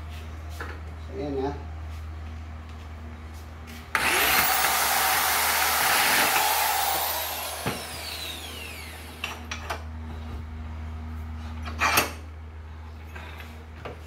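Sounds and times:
electric drill drilling into steel: 4.0s - 9.4s.

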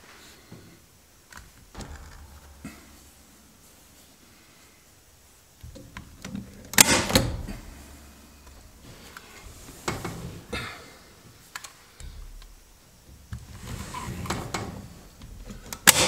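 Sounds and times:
handling noise: 0.5s - 10.6s
staple gun shots: 6.7s - 7.6s.

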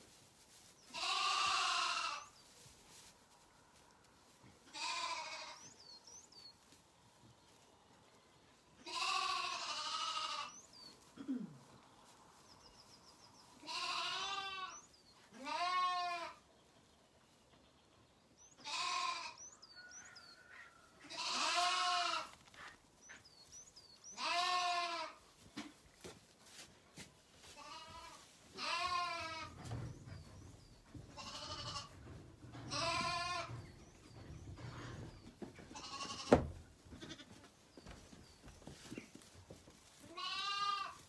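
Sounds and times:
lambs bleating: 0.9s - 2.3s, 4.7s - 5.6s, 8.8s - 10.6s, 13.6s - 14.8s, 15.4s - 16.4s, 18.6s - 19.4s, 21.0s - 22.3s, 24.1s - 25.2s, 27.6s - 29.6s, 31.2s - 32.0s, 32.6s - 33.7s, 35.8s - 37.4s, 40.1s - 41.0s.

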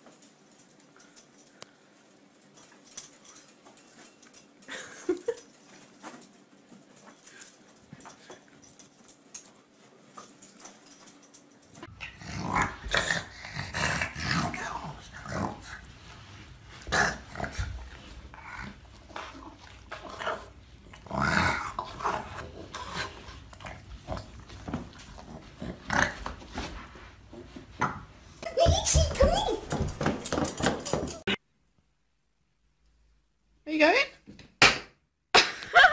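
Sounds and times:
dog growling and grunting: 11.9s - 15.9s, 16.8s - 26.7s.

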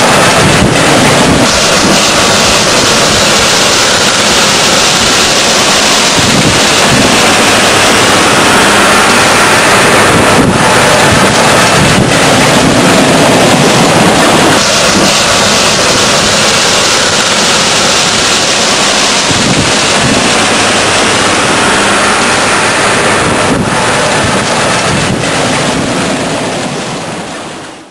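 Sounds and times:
farm machinery running: 0.0s - 27.9s
wind rushing on microphone: 0.0s - 27.9s.

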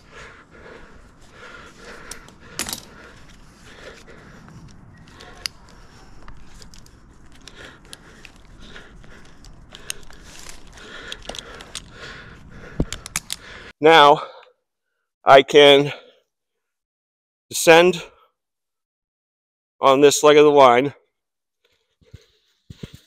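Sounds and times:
climbing hardware clinking: 2.0s - 3.4s.

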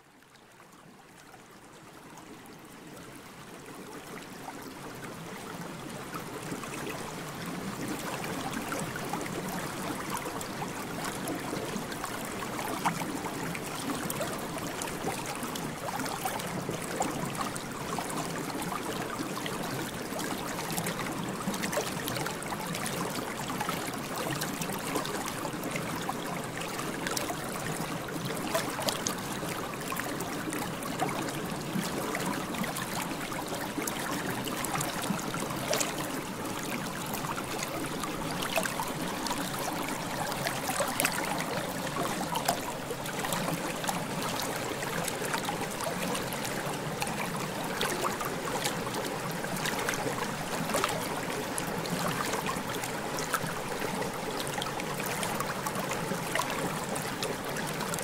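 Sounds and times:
stream trickling and gurgling: 0.0s - 58.0s.

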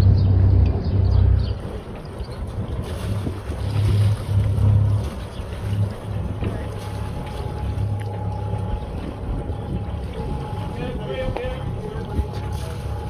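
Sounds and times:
boat engine humming: 0.0s - 13.0s
wind buffeting microphone: 0.0s - 13.0s.

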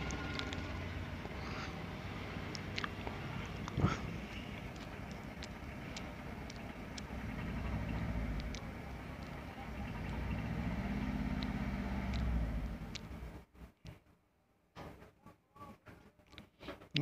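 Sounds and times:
engine rumbling: 0.0s - 14.2s
faint sharp clicks: 4.5s - 7.1s, 11.3s - 12.3s, 12.9s - 13.2s.

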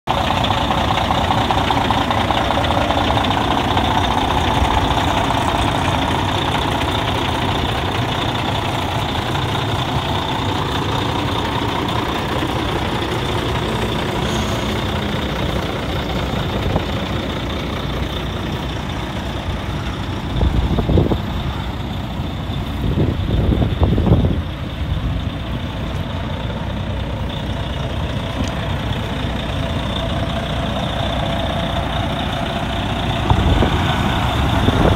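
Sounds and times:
diesel truck engine idling: 0.0s - 34.9s
wind buffeting microphone: 20.2s - 21.7s, 22.6s - 25.4s, 33.1s - 34.9s.

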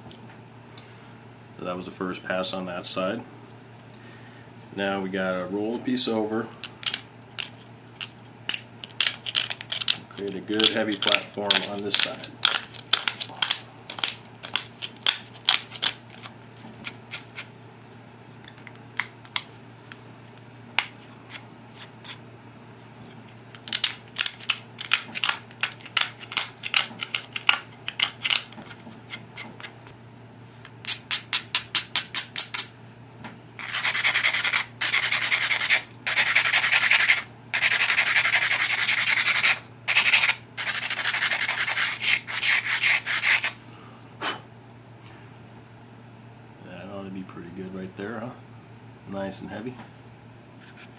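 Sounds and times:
stone flaking clicks and scrapes: 6.8s - 17.5s
abrader rasping on stone: 33.6s - 43.6s.

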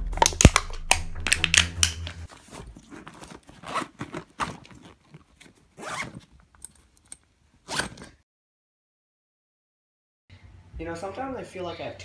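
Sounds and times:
zipper on fabric bag: 2.3s - 6.3s, 7.6s - 8.2s.

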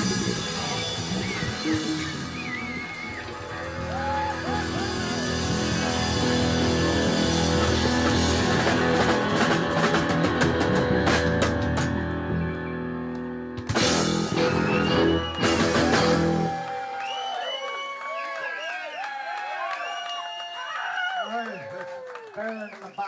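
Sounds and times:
bending lead guitar notes: 0.0s - 16.7s
live band playing: 0.0s - 17.8s.

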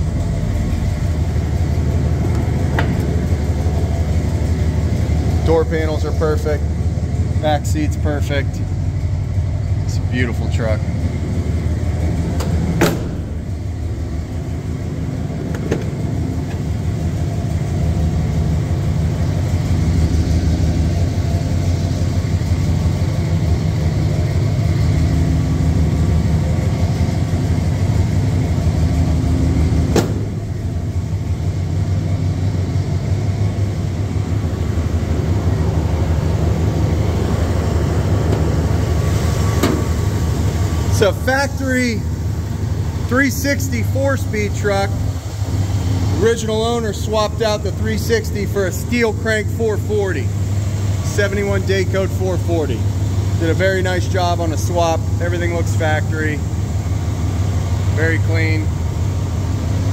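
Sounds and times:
truck engine idling: 0.0s - 59.9s
sharp knocks: 12.4s - 13.4s, 29.9s - 30.4s.

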